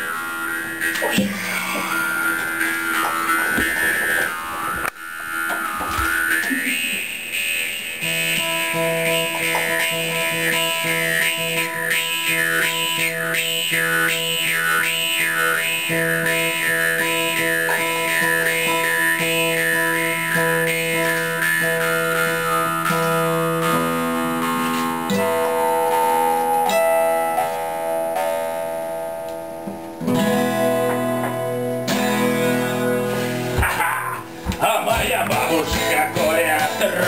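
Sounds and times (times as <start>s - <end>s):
plucked strings: 0.0s - 7.0s, 8.0s - 37.0s
high wavering whistle melody: 0.0s - 27.5s.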